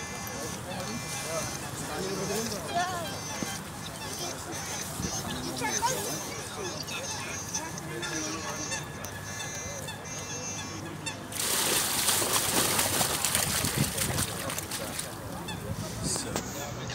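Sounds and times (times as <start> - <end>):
water pouring and splashing: 11.3 - 15.1.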